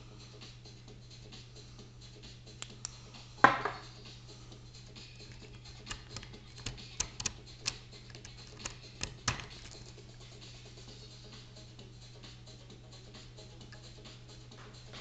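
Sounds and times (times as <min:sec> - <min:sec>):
lock pick metallic clicks: 0:05.3 - 0:09.8.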